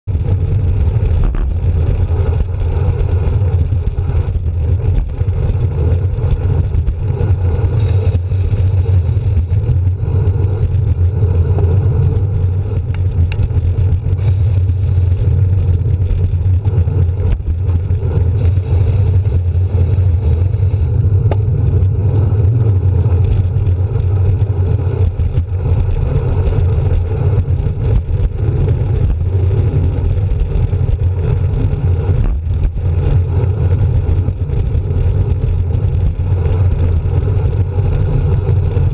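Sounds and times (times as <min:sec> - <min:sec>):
wind and road noise: 0:00.0 - 0:38.9.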